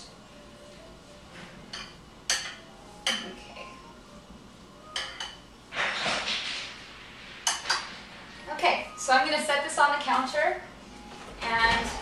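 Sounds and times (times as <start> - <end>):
spoon clinking against bowl: 1.7 - 3.6, 4.9 - 5.4
spoon stirring and scraping: 7.3 - 8.0.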